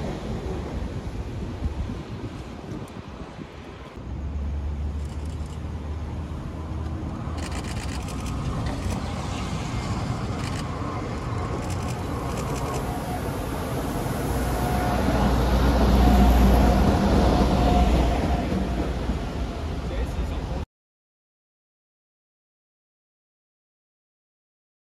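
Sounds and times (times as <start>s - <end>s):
diesel locomotive engine rumble: 4.0s - 20.6s.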